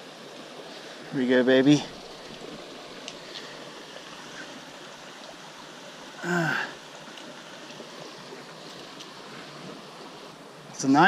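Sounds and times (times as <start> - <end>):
stream water running: 0.0 - 11.0.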